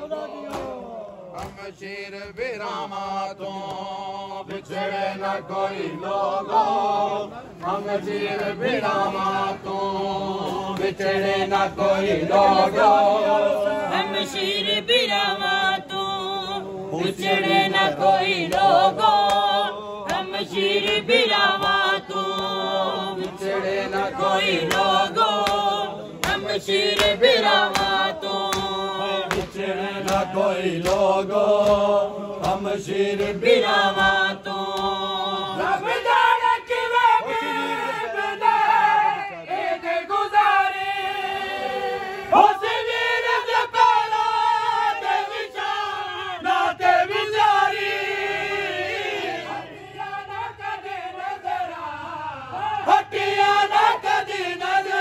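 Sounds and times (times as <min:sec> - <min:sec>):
men chanting in unison: 0:00.0 - 0:55.0
chest-beating slaps: 0:00.5 - 0:02.4, 0:24.6 - 0:33.5.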